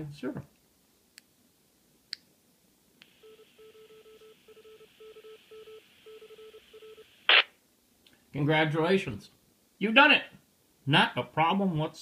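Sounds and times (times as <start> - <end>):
radio static hiss: 3.0 - 3.6, 4.4 - 7.6
squelch noise burst: 7.3 - 7.5.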